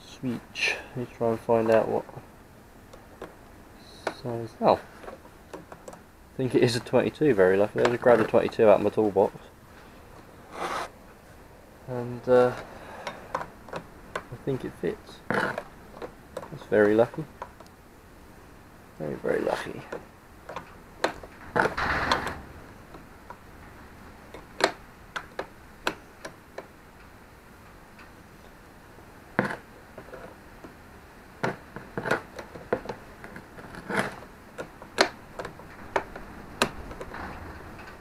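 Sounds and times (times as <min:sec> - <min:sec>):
scraping rustle: 0:06.6 - 0:17.2.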